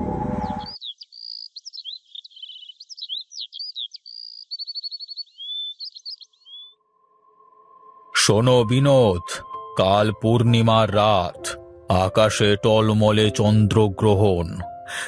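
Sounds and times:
birds chirping and trilling: 0.0s - 15.0s.

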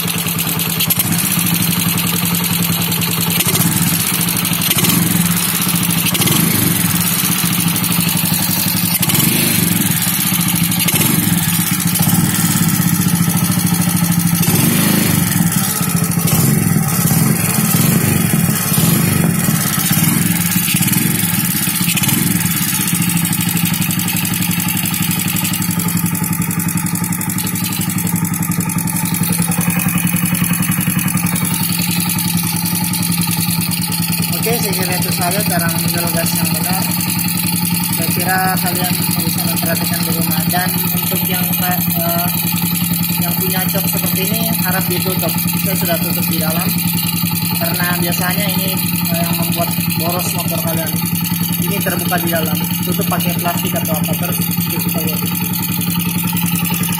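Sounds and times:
motorcycle engine idling: 0.0s - 56.9s.

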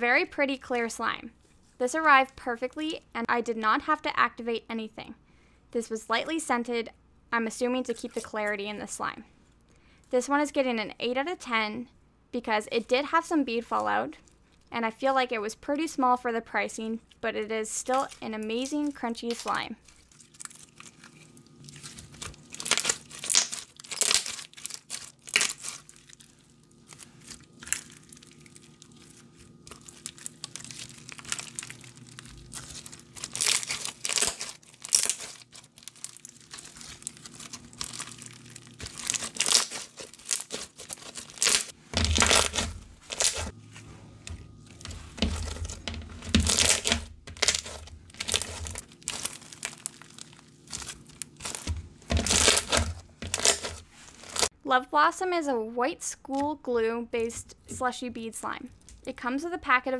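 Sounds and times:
bead slime crackling and popping: 17.8s - 43.5s, 44.3s - 54.5s.

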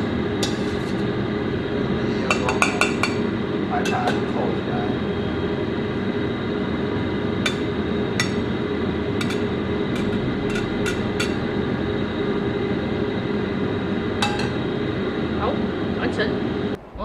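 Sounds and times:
steady low rumble: 0.0s - 17.0s
metal spatula clinking on plate: 9.2s - 11.4s.

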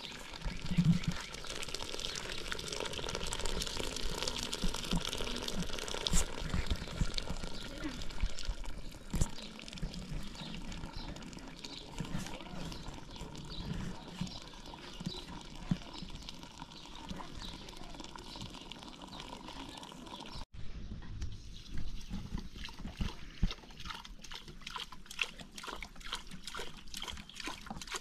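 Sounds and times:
outdoor background noise: 0.0s - 28.0s.

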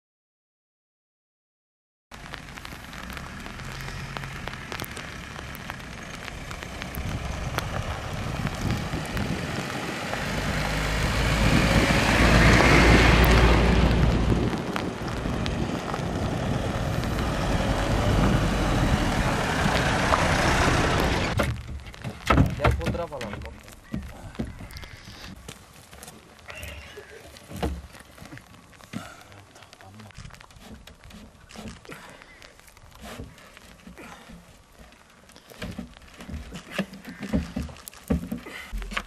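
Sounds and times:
trucks driving on dirt track: 2.2s - 24.7s.

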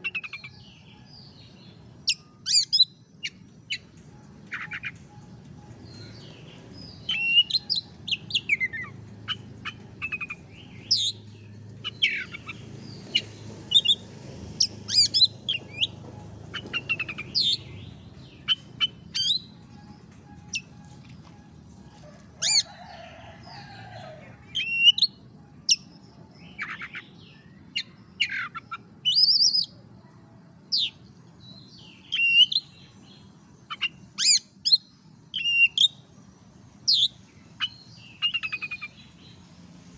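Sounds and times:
bird singing whistles and chirps: 2.0s - 14.0s, 14.6s - 21.5s, 24.5s - 29.7s, 31.7s - 32.9s, 33.7s - 36.0s, 36.9s - 39.0s.

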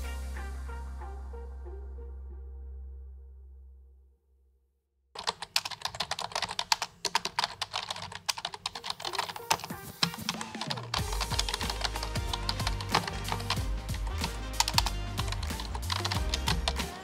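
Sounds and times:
fast typing on a keyboard: 5.2s - 17.0s.

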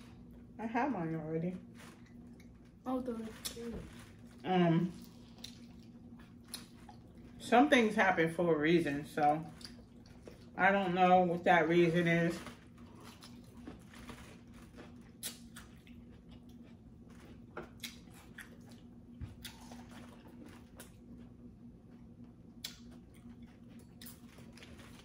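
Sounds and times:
person chewing: 5.0s - 7.4s, 9.5s - 10.6s, 12.6s - 21.3s, 21.9s - 25.0s.

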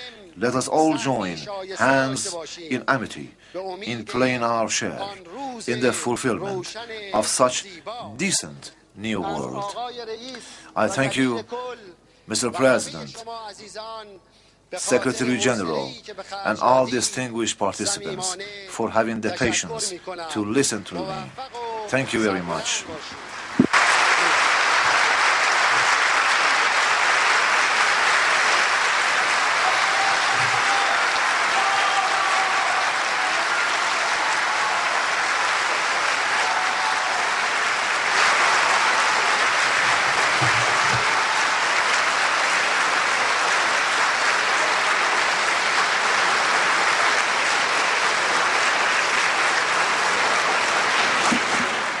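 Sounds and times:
audience applauding: 21.0s - 52.0s.

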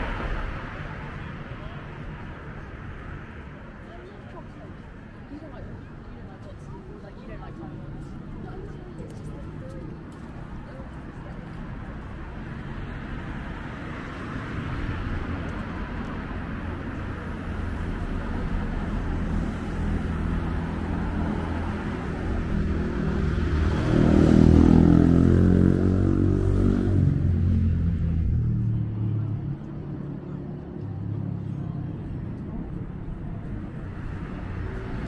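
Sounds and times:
vehicle engine passing: 20.0s - 32.0s.

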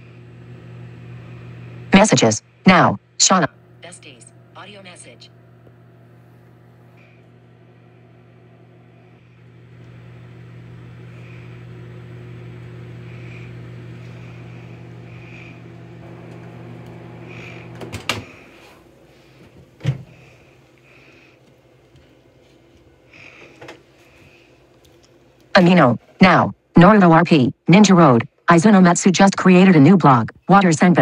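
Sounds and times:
microwave oven humming: 0.0s - 31.0s.

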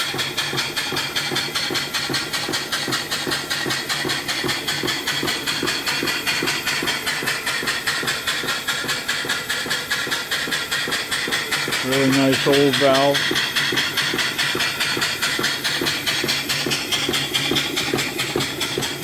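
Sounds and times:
steam engine beating: 0.0s - 19.0s.

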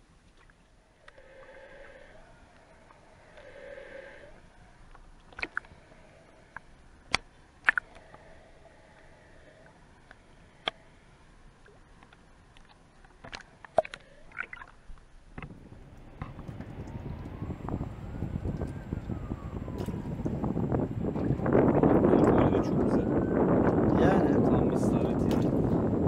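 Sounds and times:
underwater clicks and knocks: 15.4s - 17.3s.

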